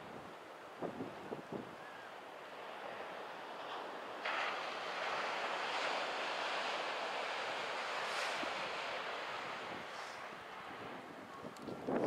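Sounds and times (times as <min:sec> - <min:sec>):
wind on microphone: 0:00.0 - 0:01.8, 0:09.4 - 0:12.0
surf washing in: 0:00.0 - 0:12.0.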